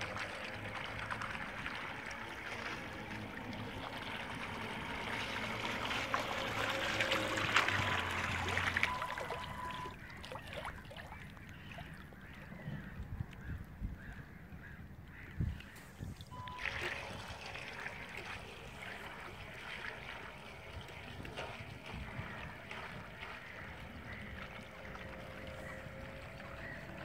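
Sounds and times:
thin motor whine: 0.0s - 10.2s, 15.8s - 27.0s
propellers churning water: 0.0s - 27.0s.

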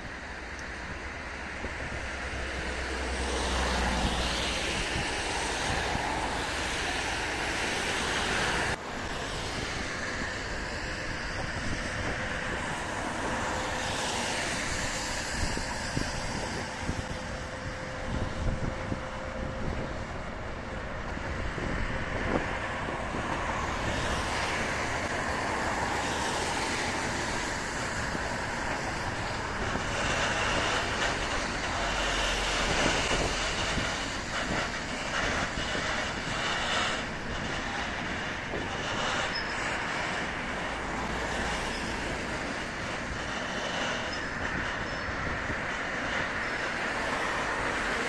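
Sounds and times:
train wheels rumbling on rail: 0.0s - 48.0s
high wheel squeal: 23.4s - 48.0s.

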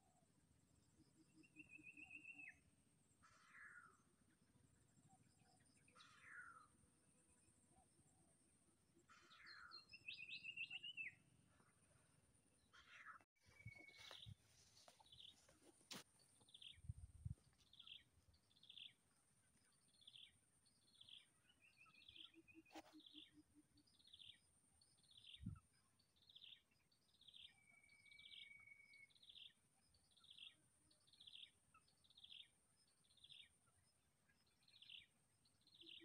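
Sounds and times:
bird chirping: 1.0s - 2.7s, 9.1s - 11.8s, 12.6s - 36.0s.

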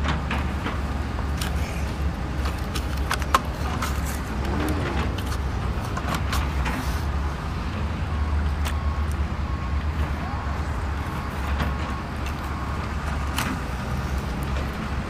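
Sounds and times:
toy excavator clicks and scrapes: 1.3s - 7.2s.

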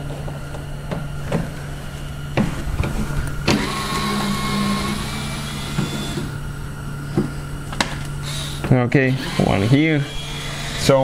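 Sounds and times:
electric screwdriver running: 3.5s - 6.3s, 8.2s - 11.0s.

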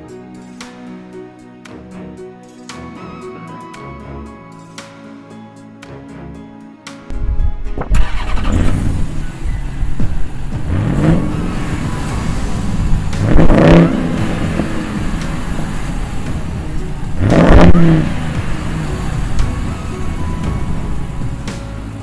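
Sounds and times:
engine idling and revving: 7.7s - 22.0s.

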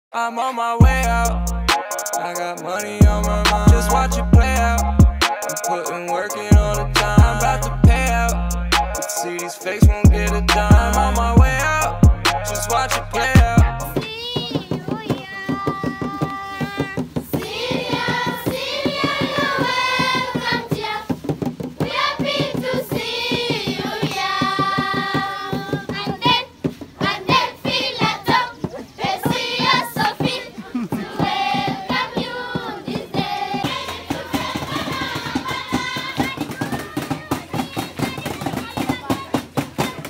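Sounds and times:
hands clapping in rhythm: 3.4s - 4.2s, 15.0s - 20.8s, 29.1s - 40.0s
children singing together: 12.8s - 21.2s, 21.8s - 38.0s.

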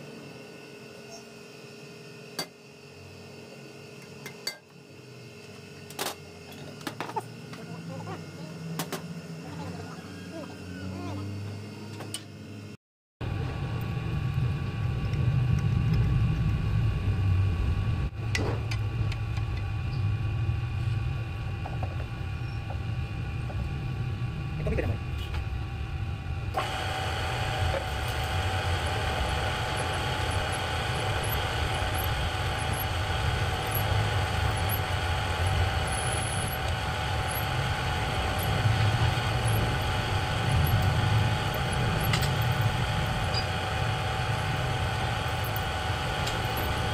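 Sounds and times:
electric drill boring into metal: 26.5s - 46.9s.

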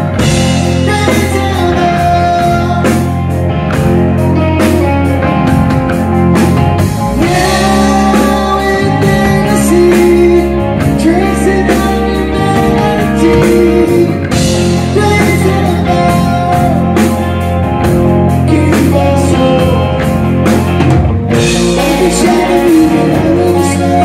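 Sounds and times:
lead vocal singing: 0.0s - 3.3s, 7.0s - 17.4s, 18.3s - 20.2s, 21.3s - 24.0s
bass guitar: 0.0s - 24.0s
drums: 0.0s - 24.0s
electric guitars: 0.0s - 24.0s.

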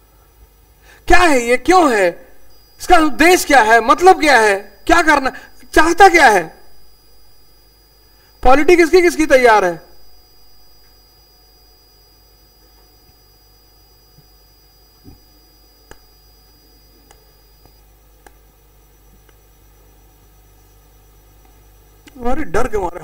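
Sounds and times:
low hum: 0.0s - 22.2s
thin high whine: 0.0s - 23.0s
soft clicks: 15.8s - 16.1s, 17.0s - 18.4s, 19.2s - 19.4s.

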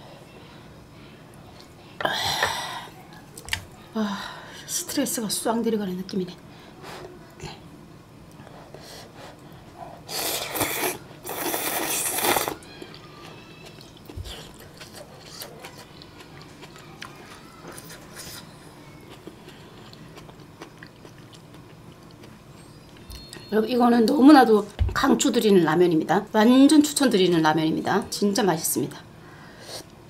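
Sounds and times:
soft chewing: 8.3s - 24.2s
person slurping noodles: 10.1s - 12.6s.

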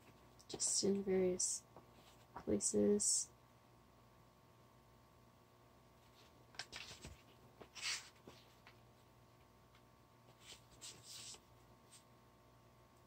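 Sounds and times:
book pages turning: 6.2s - 8.8s, 10.3s - 11.4s.

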